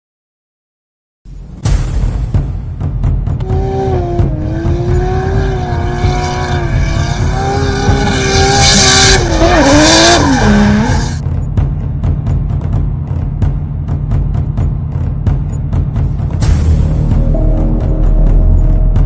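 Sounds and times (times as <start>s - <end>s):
music with low beat: 1.3s - 19.0s
racing car engine note: 3.4s - 11.5s, 12.7s - 19.0s.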